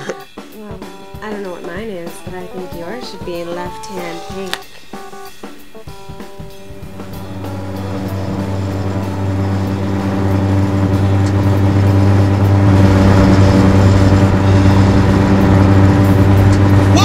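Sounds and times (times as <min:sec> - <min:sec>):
car engine hum: 0:06.6 - 0:17.0.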